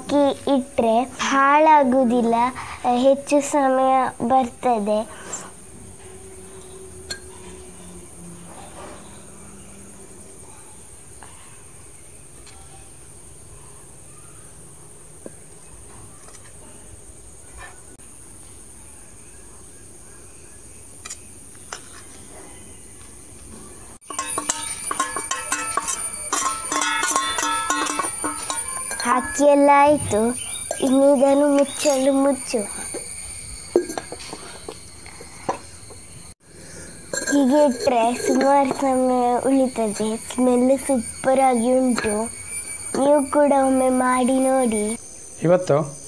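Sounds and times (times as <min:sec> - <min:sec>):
insects buzzing: 0:00.0 - 0:16.0, 0:16.6 - 0:46.0
spoon clicking on ceramic jar: 0:24.1 - 0:29.4.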